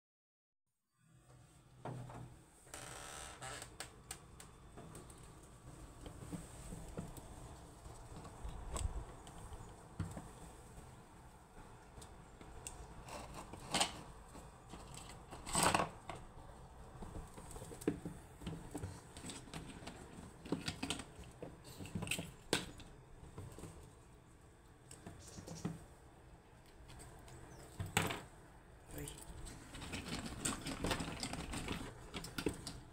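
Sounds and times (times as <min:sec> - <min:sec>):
squirrel claws scrabbling on plastic: 0:11.8 - 0:24.0, 0:29.4 - 0:32.9.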